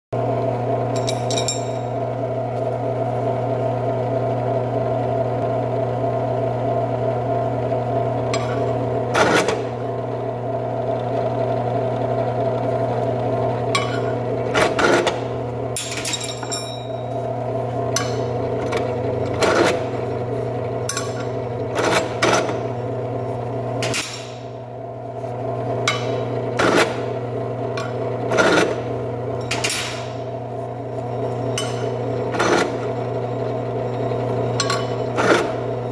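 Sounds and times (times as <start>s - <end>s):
drill press motor running: 0.2s - 35.9s
metallic clinks: 1.0s - 1.9s, 15.8s - 17.1s
drill bit scraping metal: 25.8s - 29.6s, 33.7s - 35.8s.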